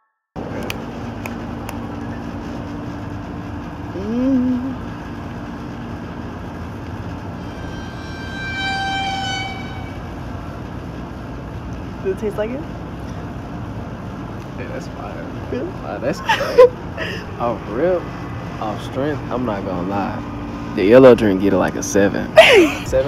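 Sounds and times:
outdoor street noise: 0:00.4 - 0:23.0
short voiced hum: 0:03.9 - 0:04.8
distant horn: 0:07.1 - 0:11.2.

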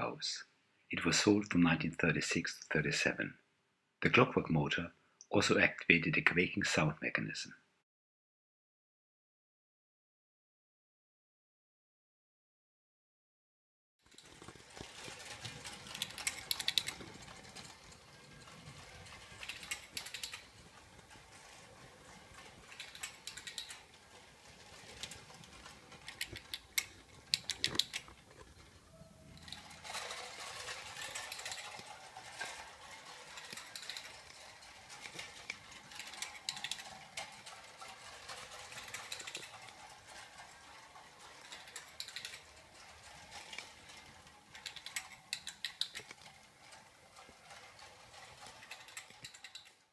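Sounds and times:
clicking and rasping of toy wheels: 0:14.0 - 0:49.9.

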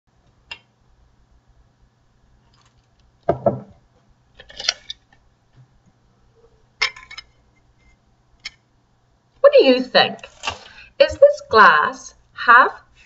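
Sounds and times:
single knock: 0:03.3 - 0:03.8.

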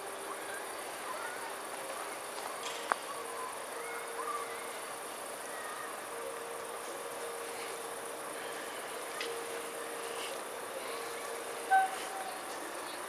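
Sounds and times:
crickets chirring: 0:00.0 - 0:13.0
faint short chirps: 0:11.7 - 0:12.5.

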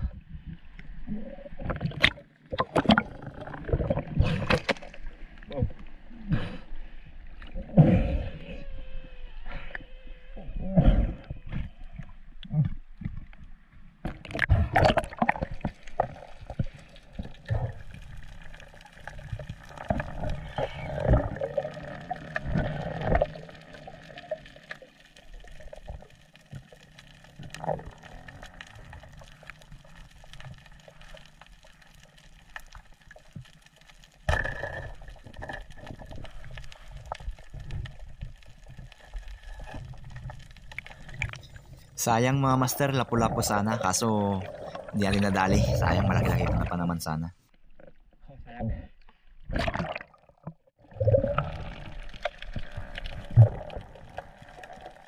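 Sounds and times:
water splashing: 0:01.0 - 0:06.3, 0:14.0 - 0:47.0, 0:49.4 - 0:55.0.

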